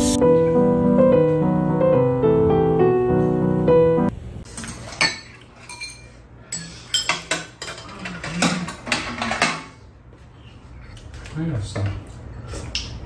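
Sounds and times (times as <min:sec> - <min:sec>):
piano music: 0:00.0 - 0:04.4
spoons clinking against ceramic bowls: 0:04.6 - 0:09.7.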